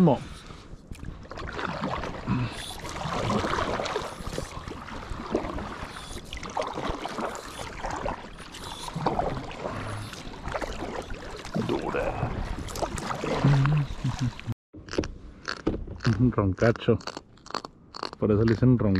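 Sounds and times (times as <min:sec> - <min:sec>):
water running along hull: 0:00.0 - 0:14.6
paddle splashing through water: 0:01.1 - 0:14.5.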